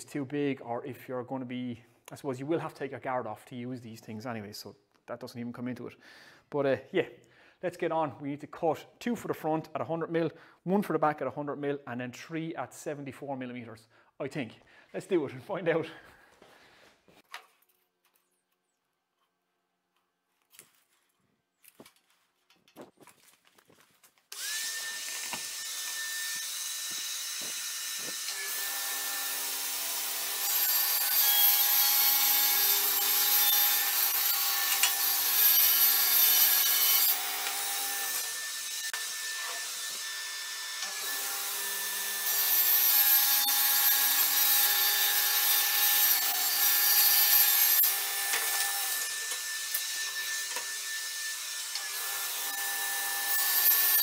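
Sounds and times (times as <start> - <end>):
table saw cutting board: 24.3 - 54.0
table saw motor whining: 24.3 - 54.0.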